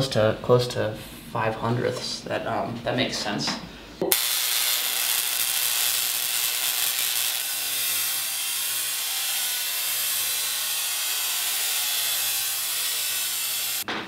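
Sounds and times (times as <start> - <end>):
tesla coil sparks hissing: 4.1 - 13.9.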